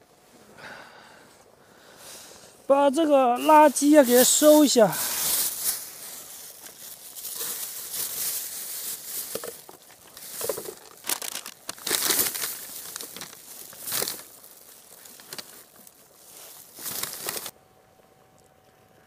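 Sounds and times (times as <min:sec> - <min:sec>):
plastic bag crinkling: 0:03.4 - 0:17.5.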